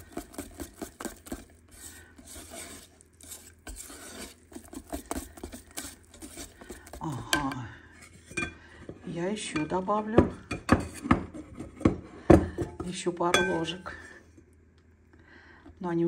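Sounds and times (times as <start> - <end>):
whisk beating batter in metal pot: 0.0 - 7.2
person speaking: 6.9 - 7.8, 9.0 - 10.4, 12.8 - 14.0.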